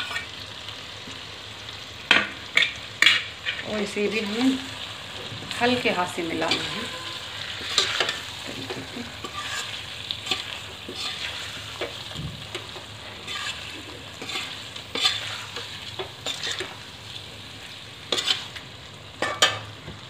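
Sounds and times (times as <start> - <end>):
gravy sizzling: 0.0 - 20.0
spoon scraping metal pan: 2.5 - 4.4, 5.5 - 16.8, 18.1 - 18.6.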